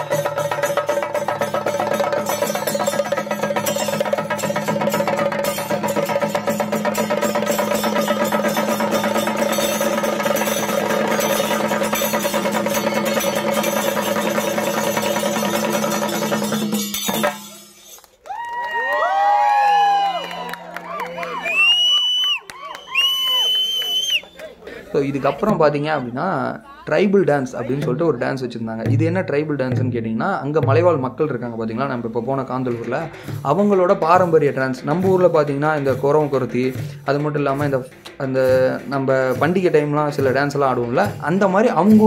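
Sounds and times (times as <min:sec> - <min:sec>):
drums beaten with sticks: 0:00.0 - 0:17.8, 0:28.7 - 0:42.0
crowd whooping and shouting: 0:18.2 - 0:24.6.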